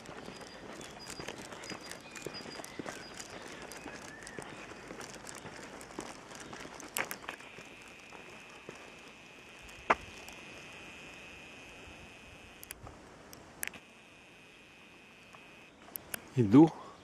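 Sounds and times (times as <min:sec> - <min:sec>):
sharp clicks: 0:00.0 - 0:10.6, 0:12.4 - 0:13.9, 0:15.3 - 0:16.3
footsteps on dirt road: 0:00.0 - 0:13.9
camera zoom motor whining: 0:07.4 - 0:12.8.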